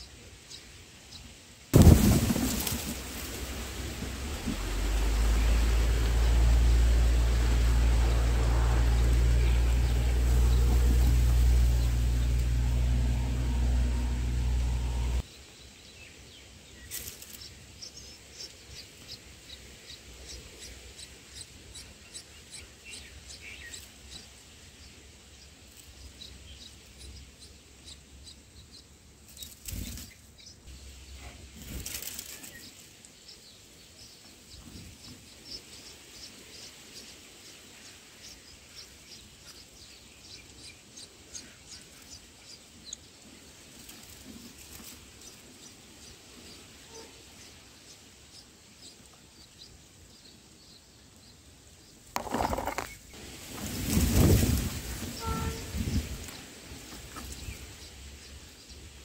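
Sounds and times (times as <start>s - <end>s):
bird wings flapping: 1.8s - 15.2s, 31.6s - 32.6s, 53.5s - 55.6s.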